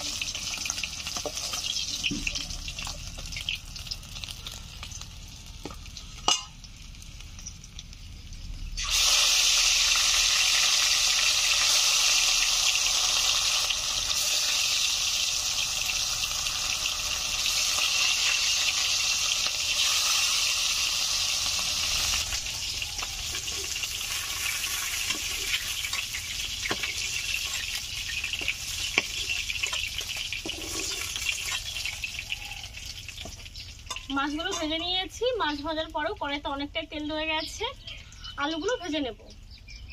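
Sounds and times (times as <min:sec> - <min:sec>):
fish sizzling in hot oil: 0:00.0 - 0:36.4
oil pops and crackles: 0:17.2 - 0:34.8.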